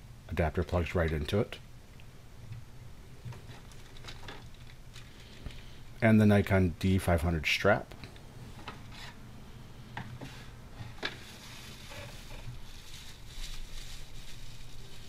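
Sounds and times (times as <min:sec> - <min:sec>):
plastic wrap rustling: 0:03.4 - 0:05.8, 0:10.3 - 0:15.0.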